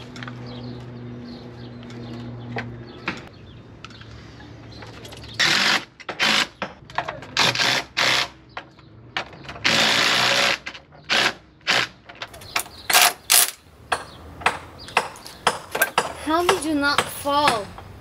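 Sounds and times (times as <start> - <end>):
drill driving screws into wood: 5.4 - 6.7, 7.4 - 8.4, 9.6 - 12.0, 12.9 - 13.6.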